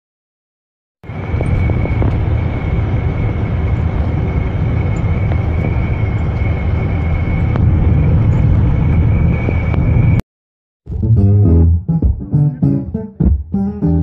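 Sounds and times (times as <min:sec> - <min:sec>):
thin high whine: 0:01.1 - 0:10.2
vehicle rumble inside cabin: 0:01.1 - 0:10.2.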